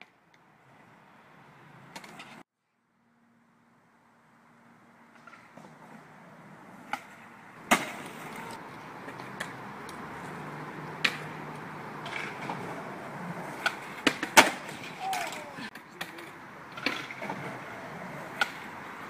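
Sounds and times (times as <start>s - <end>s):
skateboard wheels rolling on paving: 0.0s - 2.5s, 4.2s - 19.0s
skateboard clacks: 1.7s - 2.4s, 5.1s - 19.0s
skateboard tail pop: 7.7s - 9.5s, 11.0s - 11.3s, 13.6s - 15.4s.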